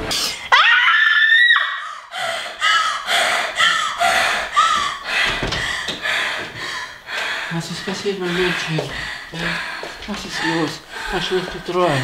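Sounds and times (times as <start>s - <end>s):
girl screaming: 0.5s - 2.0s
girl gasping and panting: 1.8s - 7.5s.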